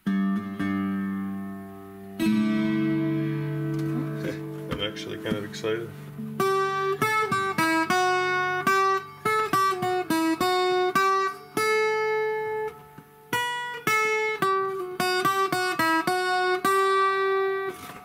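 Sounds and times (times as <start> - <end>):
mandolin picked melody: 0.0 - 18.0.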